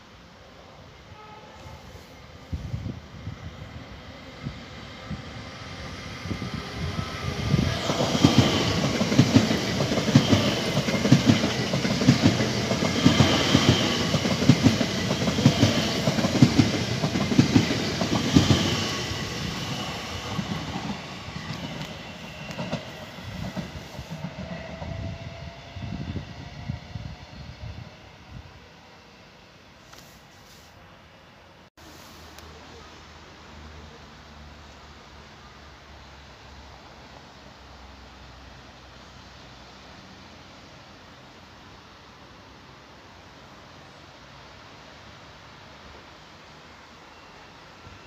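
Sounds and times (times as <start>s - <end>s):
train wheels clattering on rails: 7.6s - 25.0s.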